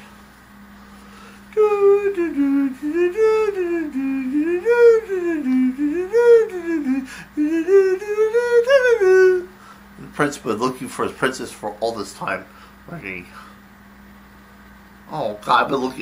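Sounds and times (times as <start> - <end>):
person humming a slow tune: 1.5 - 9.5.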